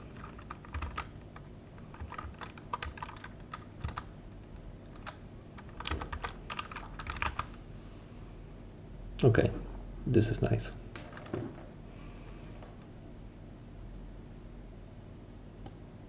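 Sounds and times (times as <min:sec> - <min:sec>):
computer keyboard typing: 0:00.0 - 0:04.1, 0:04.8 - 0:07.6.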